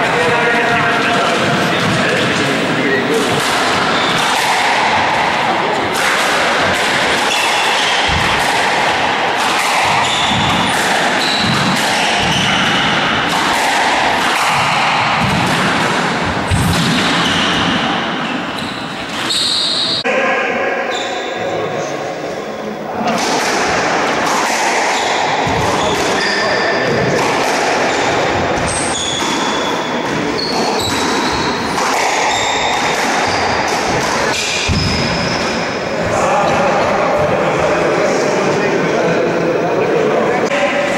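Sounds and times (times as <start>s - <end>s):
squash ball hitting rackets and walls: 0.0s - 20.0s, 23.0s - 37.8s
shoes squeaking on wooden floor: 3.3s - 4.2s, 9.6s - 13.0s, 27.9s - 33.6s.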